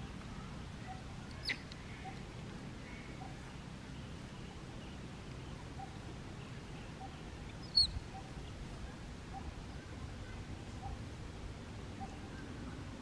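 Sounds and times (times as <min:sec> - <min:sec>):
high-pitched animal chirp: 0:07.0 - 0:08.3.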